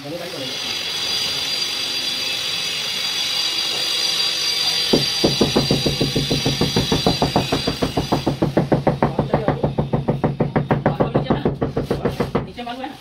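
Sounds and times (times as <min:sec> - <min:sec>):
wooden handle tapping tile: 0:05.0 - 0:12.6.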